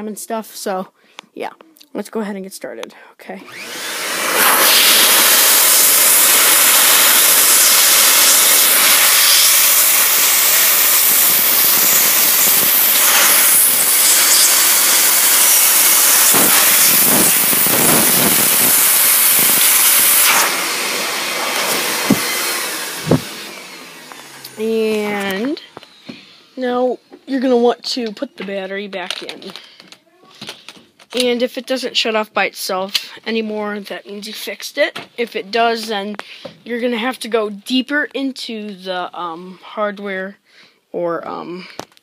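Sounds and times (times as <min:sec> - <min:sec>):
vacuum blowing air: 0:03.4 - 0:26.7.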